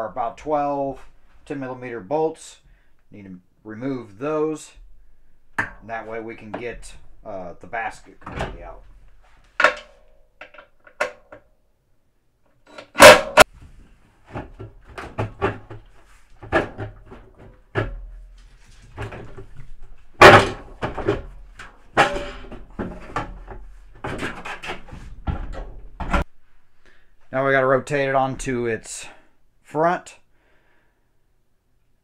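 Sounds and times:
knocks and clinks inside washer drum: 0:05.6 - 0:09.0, 0:14.3 - 0:26.3.

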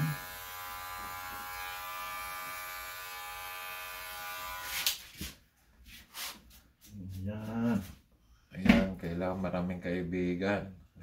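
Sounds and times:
electric hair clippers buzzing: 0:00.0 - 0:05.0.

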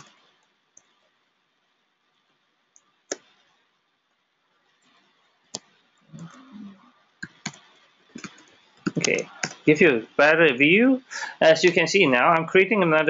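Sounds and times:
computer keyboard keystrokes: 0:07.2 - 0:09.6.

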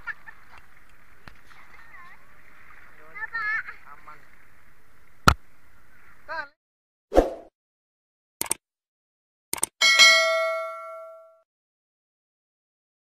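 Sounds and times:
mouse-like double clicks: 0:08.4 - 0:08.6, 0:09.5 - 0:09.8
notification bell ding: 0:09.8 - 0:11.4.

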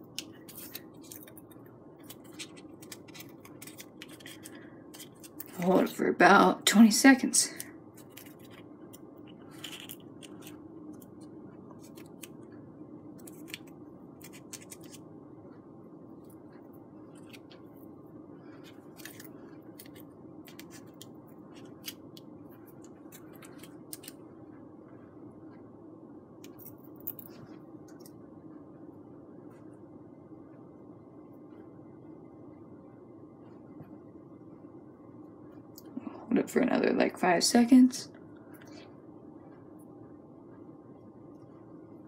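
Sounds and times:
low room hum: 0:00.0 - 0:42.0
small clicks and scratches: 0:00.1 - 0:05.8, 0:07.6 - 0:12.6, 0:13.2 - 0:15.0, 0:16.2 - 0:17.8, 0:18.5 - 0:24.2.

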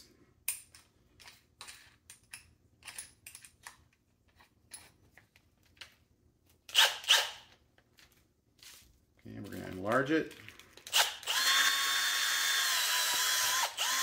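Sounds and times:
drill chuck clicking and rattling: 0:09.9 - 0:14.0.

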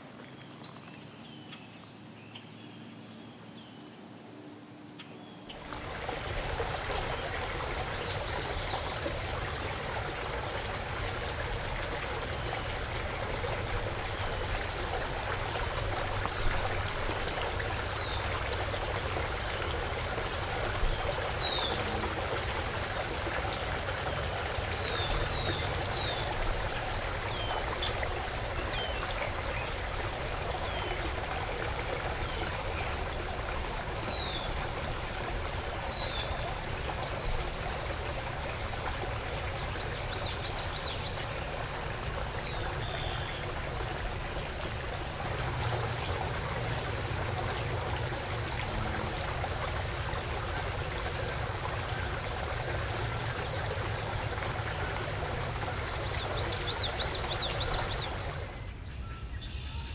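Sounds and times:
shallow water running: 0:05.5 - 0:58.6.

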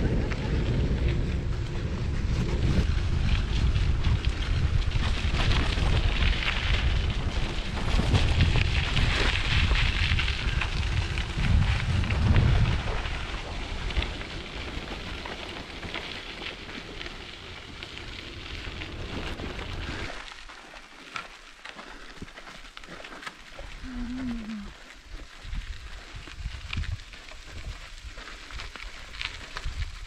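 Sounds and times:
wind buffeting microphone: 0:00.0 - 0:20.3, 0:23.7 - 0:30.0.

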